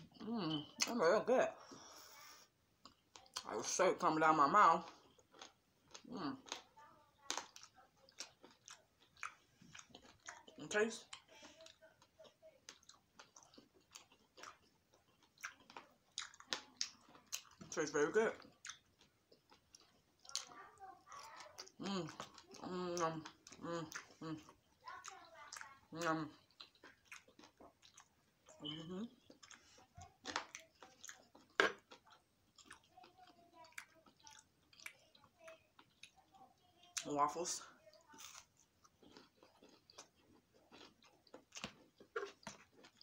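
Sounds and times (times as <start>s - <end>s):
close-up chewing: 1.6s - 3.5s, 4.8s - 43.0s.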